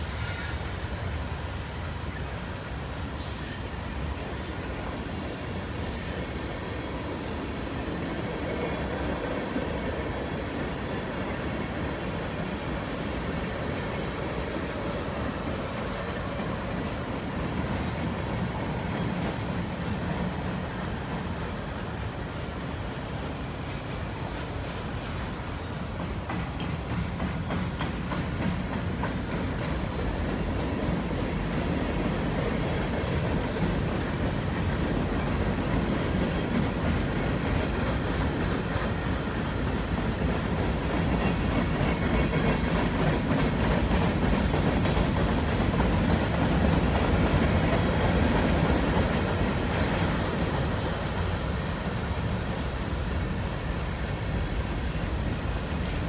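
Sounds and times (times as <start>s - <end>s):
train wheels rumbling on rail: 0.0s - 56.0s
wheels clicking over rail joints: 25.9s - 56.0s.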